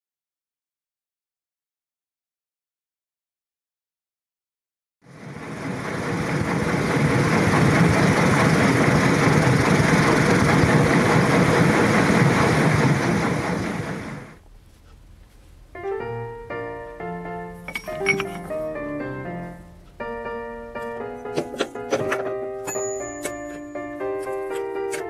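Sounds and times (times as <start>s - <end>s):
loud steady rushing noise: 5.1s - 14.4s
piano music: 15.7s - 25.0s.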